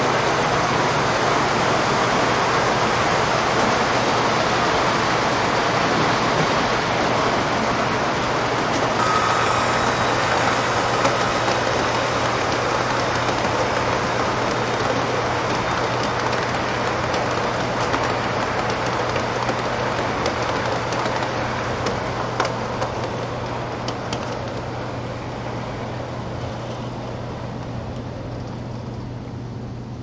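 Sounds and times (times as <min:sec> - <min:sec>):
model train wheels rumbling: 0:00.0 - 0:25.6
rail joint clicks: 0:08.7 - 0:24.7.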